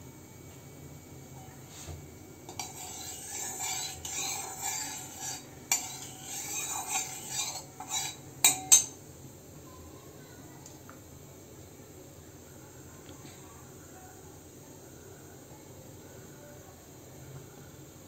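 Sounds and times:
spatula scraping metal pan: 2.5s - 9.0s.

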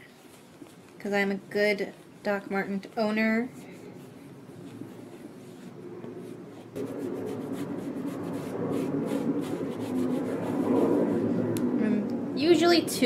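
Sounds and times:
sponge rubbing on leather: 3.5s - 11.3s.

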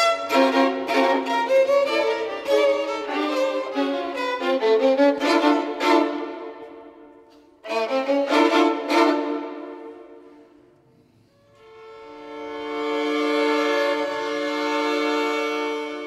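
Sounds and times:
violins playing accented strokes: 0.0s - 10.6s.

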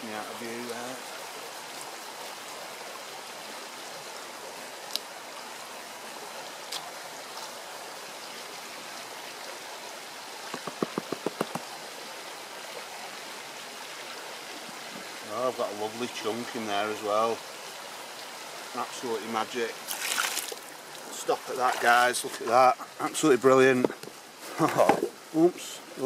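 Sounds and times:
shallow stream running: 0.0s - 26.0s
plastic pan knocks: 10.5s - 11.6s.

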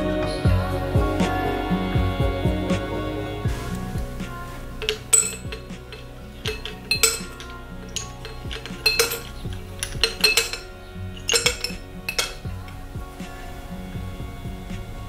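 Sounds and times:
ice cubes clinking in glass: 4.8s - 12.5s.

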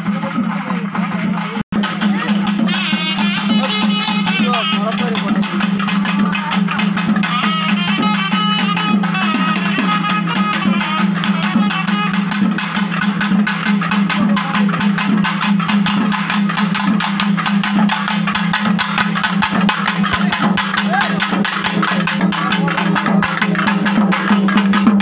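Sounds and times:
fast dense drumming: 0.0s - 25.0s
faint reed pipes: 2.3s - 13.4s.

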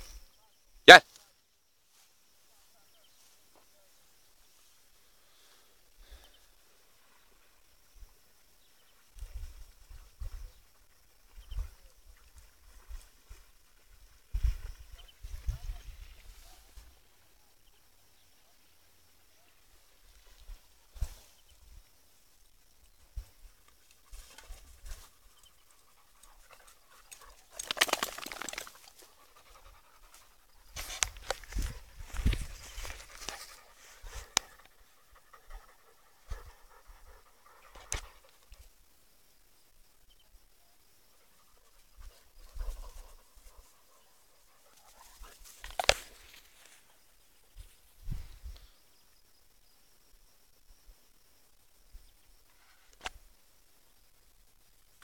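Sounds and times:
faint background hiss: 0.0s - 55.0s
dog panting: 29.0s - 30.7s, 33.2s - 38.5s.

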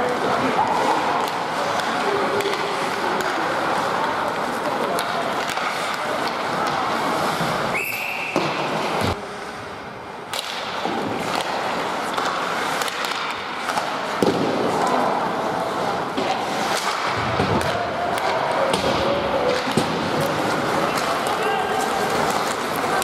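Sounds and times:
skates scraping ice: 0.0s - 23.0s
sticks and puck clacking: 0.0s - 23.0s
referee's whistle: 7.7s - 8.5s.

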